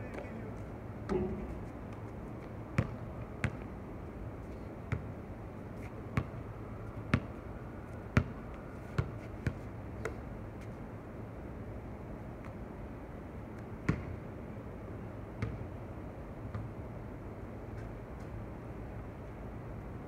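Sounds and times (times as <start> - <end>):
low background noise: 0.0 - 20.0
basketball bouncing on hard court: 2.8 - 3.7, 4.9 - 5.2, 6.2 - 6.4, 13.9 - 14.2, 15.4 - 15.6.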